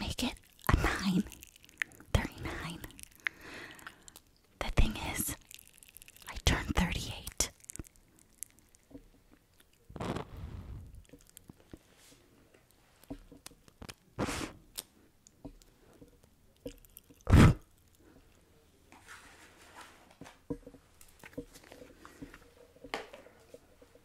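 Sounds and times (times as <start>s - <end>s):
popping candy crackling in mouth: 0.0s - 11.8s, 13.0s - 18.1s.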